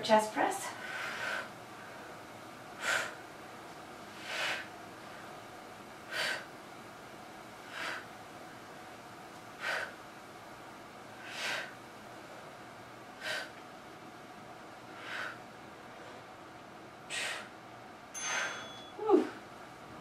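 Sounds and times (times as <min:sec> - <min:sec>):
woman breathing hard: 0:00.7 - 0:02.2, 0:02.8 - 0:03.2, 0:04.1 - 0:05.4, 0:06.0 - 0:06.5, 0:07.6 - 0:08.1, 0:09.6 - 0:10.0, 0:11.2 - 0:11.8, 0:13.2 - 0:13.6, 0:14.9 - 0:16.2, 0:17.1 - 0:17.6, 0:18.2 - 0:19.4.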